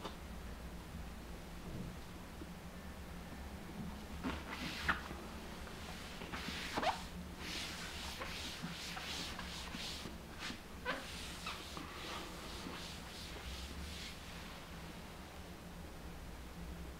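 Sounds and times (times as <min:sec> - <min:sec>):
towel rubbing on floor: 0:04.2 - 0:14.7.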